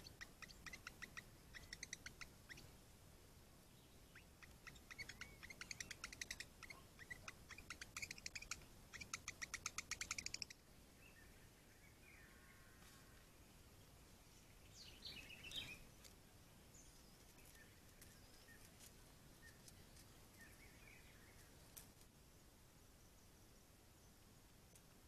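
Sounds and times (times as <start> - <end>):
songbird rapid sharp chirps: 0.0 - 2.7, 3.8 - 11.9, 14.6 - 16.1.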